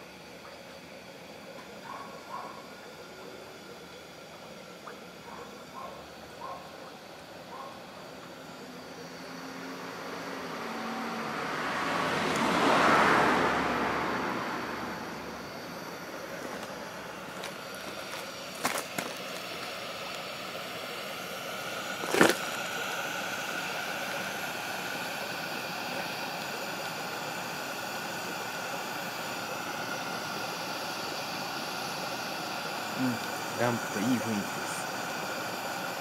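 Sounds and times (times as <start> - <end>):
pressure lantern hissing: 0.0 - 36.0
car passing: 8.3 - 18.5.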